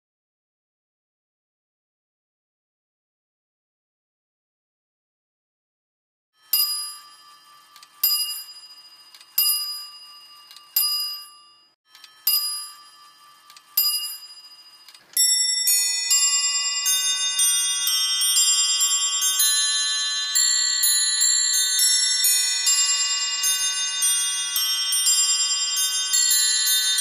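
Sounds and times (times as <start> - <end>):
clock bell striking: 6.4 - 27.0
small bells chiming a tune: 6.4 - 27.0.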